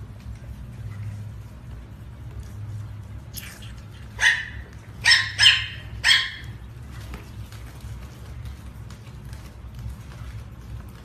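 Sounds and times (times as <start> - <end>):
dog barking: 4.2 - 6.6.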